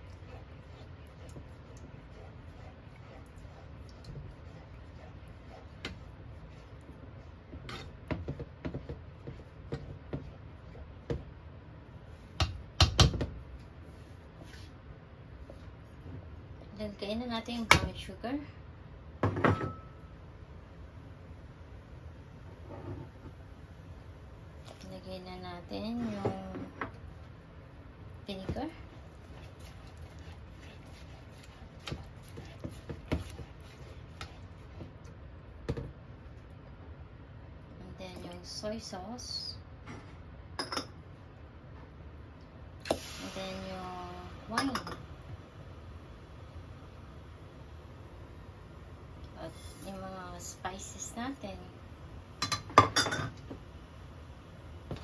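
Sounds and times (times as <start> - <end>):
spatula stirring in saucepan: 0.0 - 12.4, 25.8 - 36.6
low steady hum: 0.0 - 55.0.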